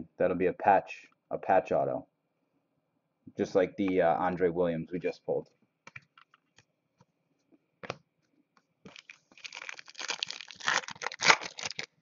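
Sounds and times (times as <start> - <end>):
card packaging crinkling: 8.9 - 12.0.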